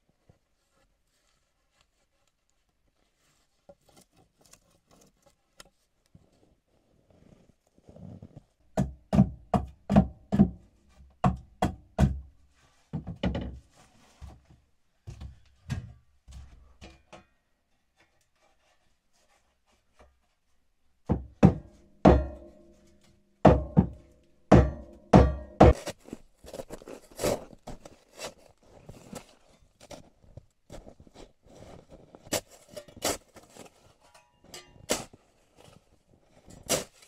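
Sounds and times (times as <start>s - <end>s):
hatchet chopping wood: 8.8s - 10.6s, 11.2s - 12.2s, 23.5s - 25.9s.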